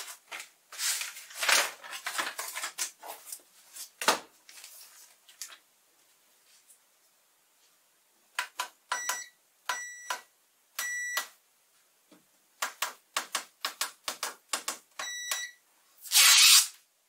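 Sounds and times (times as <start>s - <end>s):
multimeter short beeps: 10.8s - 11.2s.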